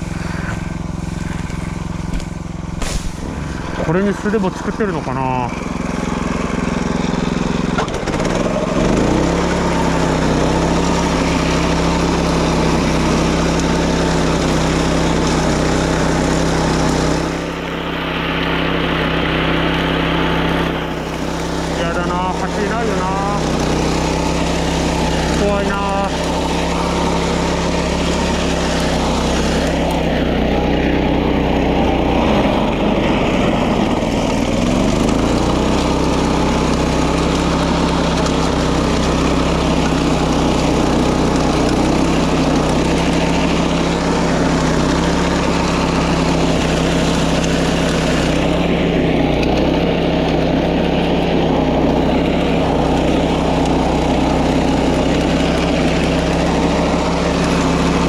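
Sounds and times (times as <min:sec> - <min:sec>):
grass cutter engine running: 0:00.0 - 0:58.0.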